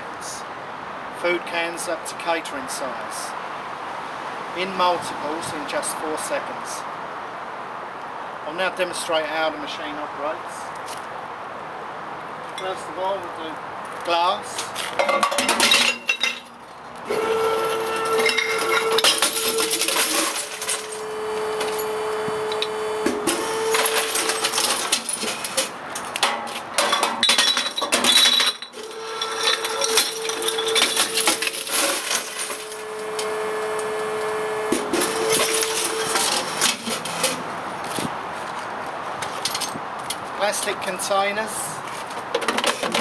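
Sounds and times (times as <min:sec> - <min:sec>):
glass cracking and clinking: 0:14.9 - 0:16.6, 0:18.2 - 0:21.0, 0:23.8 - 0:32.7
compactor motor hum: 0:17.1 - 0:25.4, 0:28.8 - 0:37.3.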